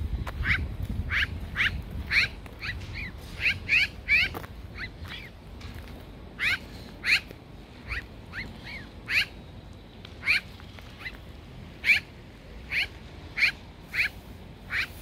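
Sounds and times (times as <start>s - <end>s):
magpie short rising calls: 0.4s - 5.3s, 6.4s - 9.4s, 11.8s - 15.0s.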